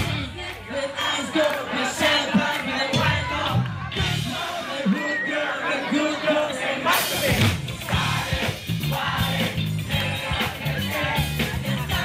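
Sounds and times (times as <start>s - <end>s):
live pop-rock band: 0.0s - 12.0s
repeating bass line: 6.8s - 12.0s.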